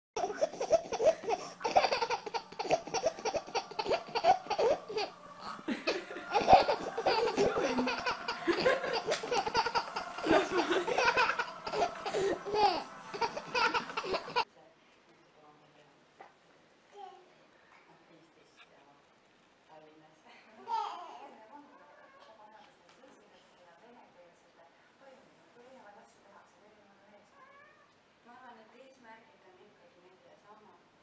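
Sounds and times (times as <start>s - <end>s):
baby laughing: 0.2s - 14.4s.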